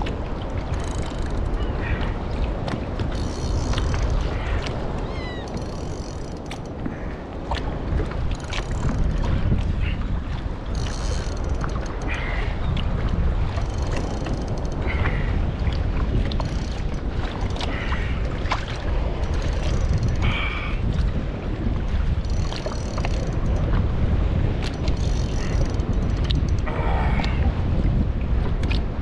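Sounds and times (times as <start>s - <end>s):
sea water washing around kayak: 0.0s - 29.0s
wind buffeting microphone: 0.0s - 29.0s
fishing reel whirring: 0.7s - 1.6s, 3.2s - 4.2s, 5.1s - 6.6s, 10.7s - 12.1s, 13.6s - 14.8s, 19.2s - 20.4s, 22.2s - 23.6s, 24.7s - 26.6s.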